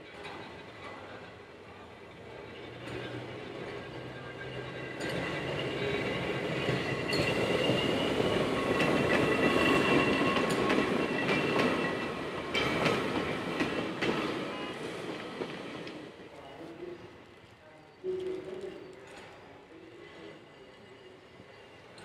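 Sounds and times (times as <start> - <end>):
tram wheels rumbling on rails: 0.0 - 17.2.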